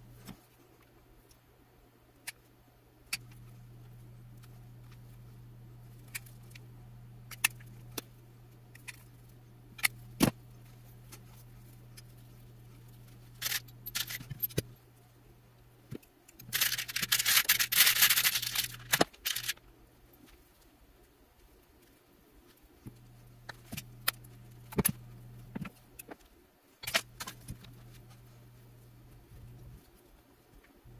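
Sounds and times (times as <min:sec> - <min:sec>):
small metal parts rattling: 0:13.3 - 0:14.6, 0:16.4 - 0:19.6.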